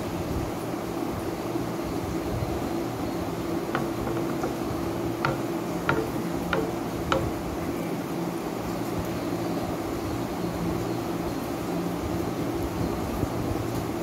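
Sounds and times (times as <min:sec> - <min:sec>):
fingers clicking against plastic plate: 0:03.8 - 0:07.4.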